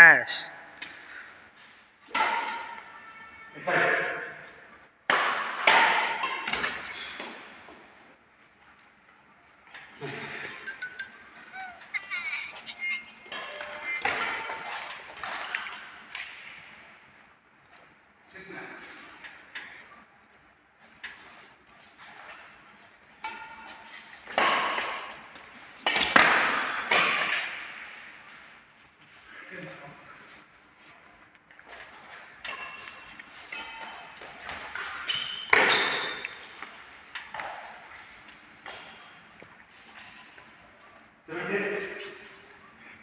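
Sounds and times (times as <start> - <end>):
racket hitting shuttlecock: 2.0 - 3.0, 5.0 - 7.5, 13.3 - 16.6, 23.2 - 28.0, 31.9 - 40.2.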